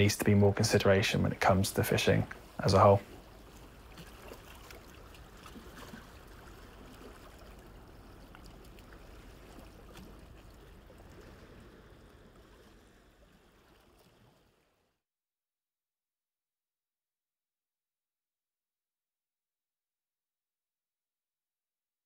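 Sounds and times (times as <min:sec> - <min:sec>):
sea water lapping: 0:00.4 - 0:15.0
small water splashes: 0:02.4 - 0:14.9.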